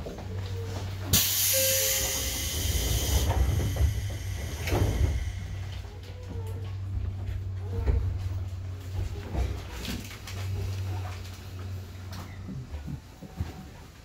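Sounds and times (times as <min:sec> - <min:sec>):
train equipment low hum: 0:00.0 - 0:14.0
compressed air hiss: 0:01.1 - 0:05.8.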